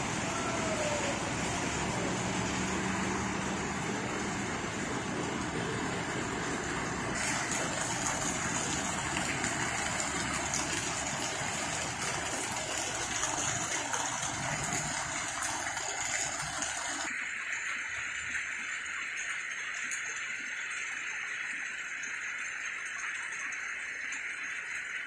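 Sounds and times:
heavy rain on gravel: 0:00.0 - 0:17.1
rainwater pouring and splashing: 0:00.0 - 0:25.0.

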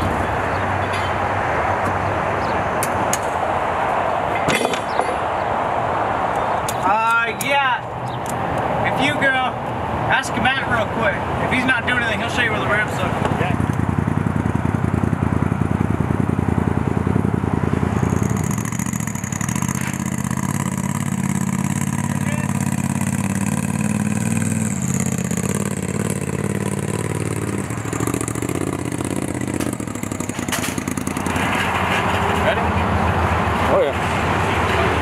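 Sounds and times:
utility vehicle engine running: 0:12.3 - 0:35.0.

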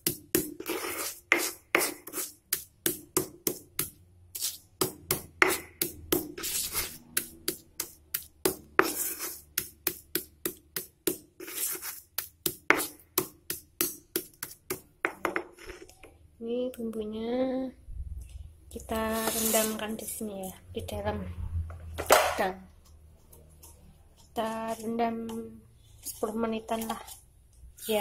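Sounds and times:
stone pestle pounding in mortar: 0:01.3 - 0:04.0, 0:04.8 - 0:06.5.

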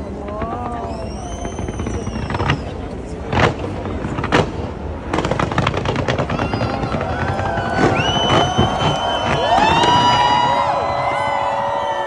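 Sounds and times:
fireworks bursts rumbling: 0:00.0 - 0:12.0
sharp fireworks bangs: 0:00.1 - 0:12.0
high firework whistle: 0:00.8 - 0:02.8, 0:06.2 - 0:12.0.

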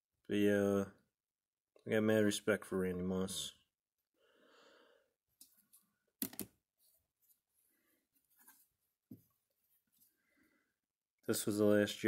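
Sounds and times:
soft rustle: 0:06.8 - 0:10.4.

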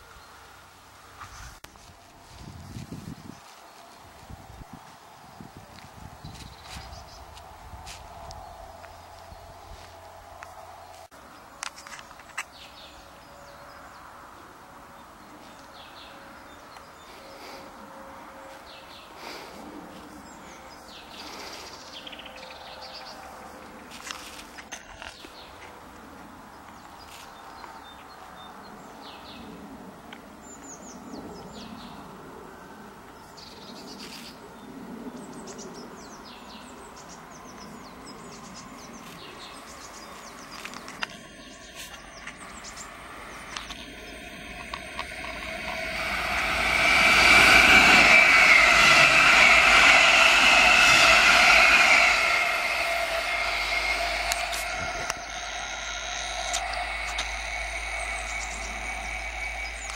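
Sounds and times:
small birds chirping: 0:33.4 - 0:59.9
electric train passing: 0:38.4 - 0:59.9.

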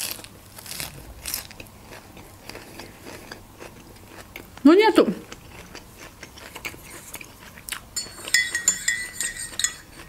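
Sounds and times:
quiet chewing: 0:00.0 - 0:10.0
utensil clinking against dish: 0:08.0 - 0:10.0.

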